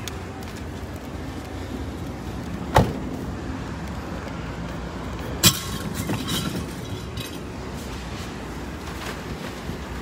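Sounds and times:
junk banging on concrete: 0:05.4 - 0:07.5.

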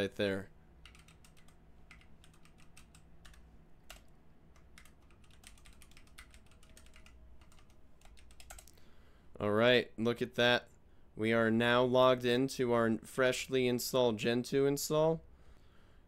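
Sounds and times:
faint keyboard typing: 0:00.8 - 0:08.8.

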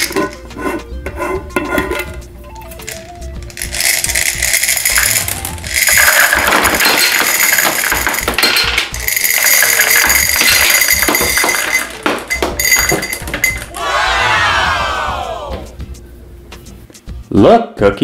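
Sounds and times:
background music: 0:00.0 - 0:18.0
gumballs clattering into glass: 0:02.8 - 0:13.8.

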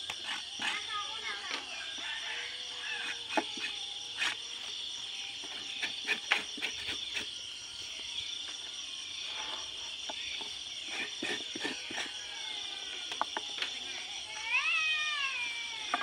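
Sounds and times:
high insect drone: 0:00.0 - 0:16.0
cleaver chopping through hide: 0:05.6 - 0:07.3.

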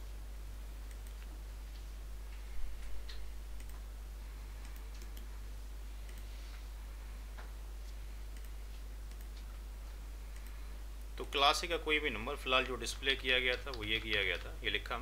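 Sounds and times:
low electrical hum: 0:00.0 - 0:15.0
computer mouse clicks: 0:00.8 - 0:01.9, 0:02.8 - 0:03.8, 0:04.6 - 0:05.3, 0:06.0 - 0:06.3, 0:08.3 - 0:09.5, 0:10.3 - 0:10.6.

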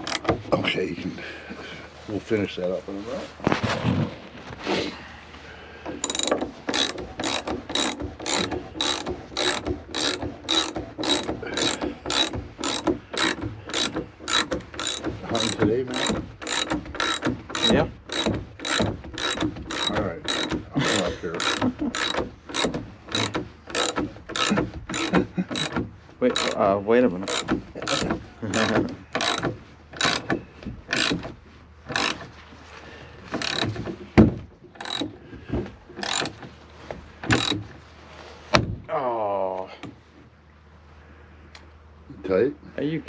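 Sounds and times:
ratchet wrench clicking: 0:00.0 - 0:00.3, 0:06.0 - 0:25.7, 0:26.3 - 0:26.6, 0:27.3 - 0:29.4, 0:30.0 - 0:30.2, 0:31.9 - 0:32.2, 0:33.4 - 0:33.7, 0:34.8 - 0:35.0, 0:36.0 - 0:36.3, 0:37.3 - 0:37.6.

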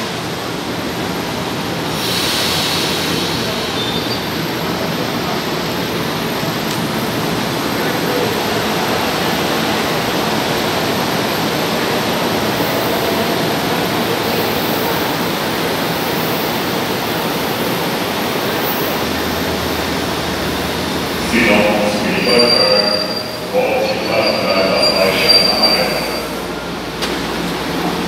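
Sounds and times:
low hum of train: 0:00.0 - 0:28.0
trains rushing through station: 0:00.0 - 0:28.0.

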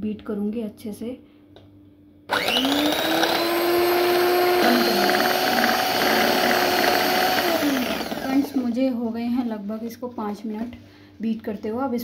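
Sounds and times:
electric hand mixer whine: 0:02.3 - 0:08.7.

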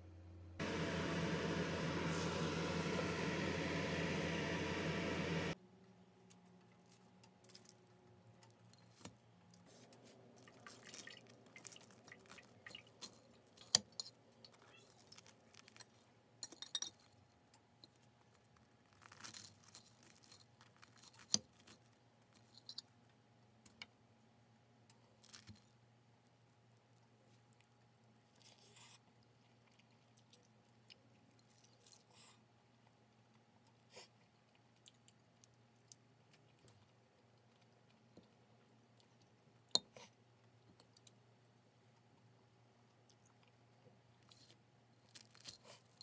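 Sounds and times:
faint steady hum: 0:00.0 - 0:07.3.

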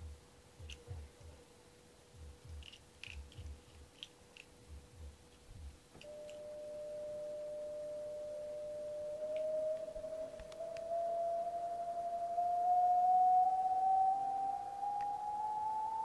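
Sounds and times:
faint steady hum: 0:00.0 - 0:16.0
electronic tone rising in pitch: 0:06.0 - 0:16.0.

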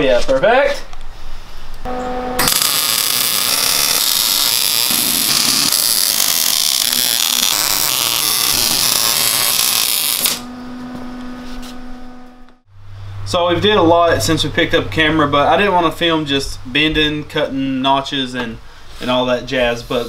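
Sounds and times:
welder arc crackling: 0:01.9 - 0:12.6.

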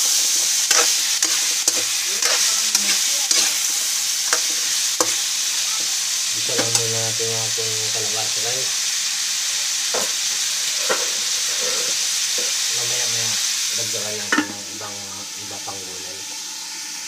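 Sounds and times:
vegetables sizzling in a frying pan: 0:00.0 - 0:17.0
metal lid clanking on pan: 0:14.3 - 0:14.6.

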